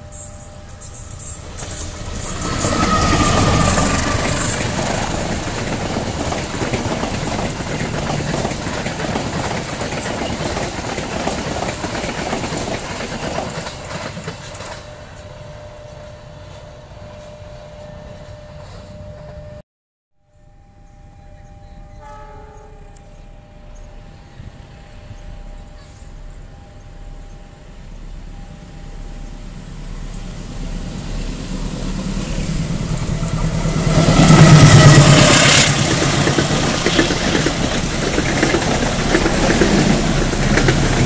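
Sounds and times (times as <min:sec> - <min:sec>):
diesel locomotive passing: 0:00.0 - 0:19.6, 0:20.8 - 0:41.0
train wheels clattering over rail joints: 0:00.8 - 0:14.9, 0:33.9 - 0:41.0.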